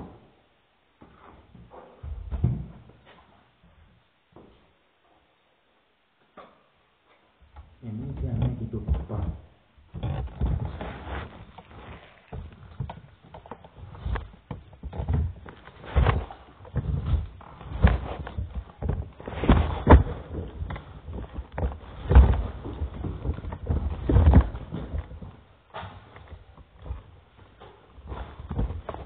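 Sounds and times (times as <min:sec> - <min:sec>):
heavy thumps: 0:07.4 - 0:29.0.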